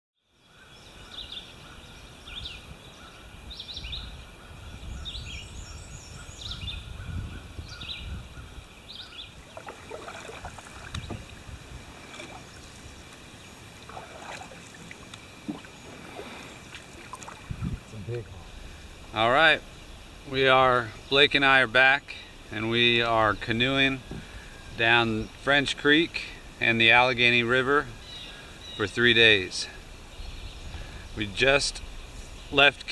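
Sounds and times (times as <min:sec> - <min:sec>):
birds chirping: 0:00.3 - 0:32.9
canoe paddling splashes: 0:09.0 - 0:21.6, 0:22.3 - 0:25.9.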